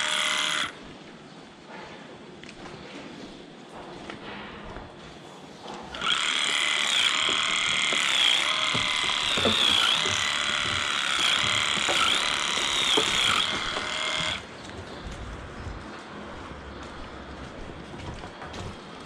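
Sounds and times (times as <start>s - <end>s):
electric clippers buzzing: 0.0s - 0.8s, 5.9s - 14.5s.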